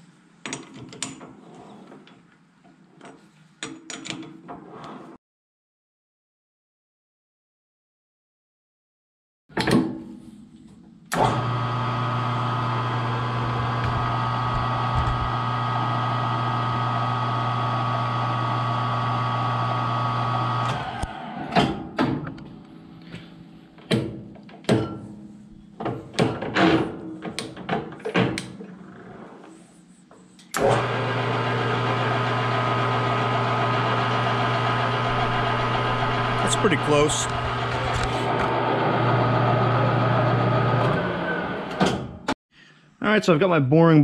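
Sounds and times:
lathe motor humming: 11.2 - 21.1, 30.6 - 41.7.

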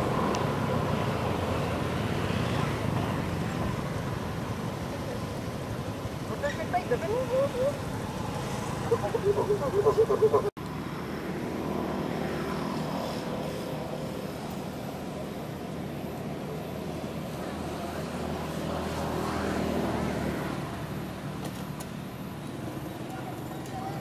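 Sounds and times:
distant engine drone: 0.0 - 24.0.

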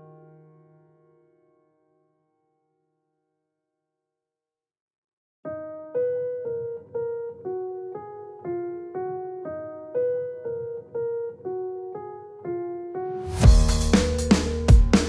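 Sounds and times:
cymbal crash: 13.2 - 15.0
drums: 13.2 - 15.0.

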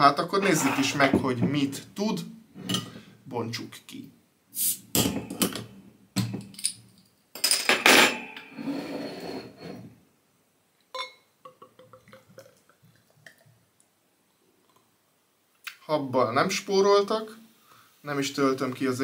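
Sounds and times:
bottle cap hiss: 4.6 - 4.8
glass bottle clinks: 11.0 - 11.2.

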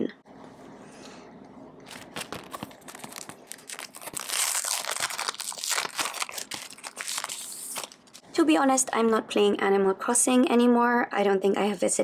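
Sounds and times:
plastic packaging crinkling: 1.8 - 8.2.

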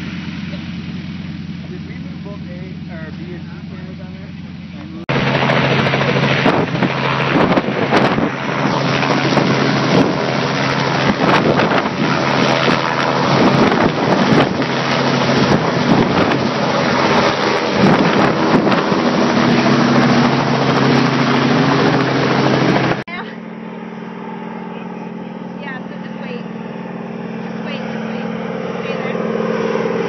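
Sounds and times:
helicopter engine and rotor hum: 0.0 - 30.0
wind noise on microphone: 4.6 - 23.0.

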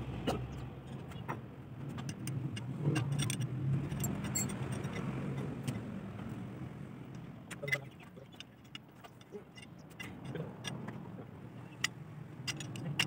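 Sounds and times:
spanner and metal parts clinking: 1.9 - 5.8, 7.2 - 13.0.

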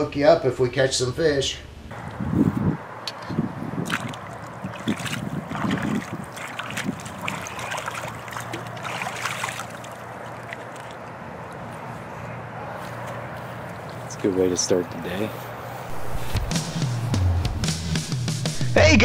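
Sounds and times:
splashing in shallow water: 3.7 - 11.9
hands working in water: 3.8 - 11.8.

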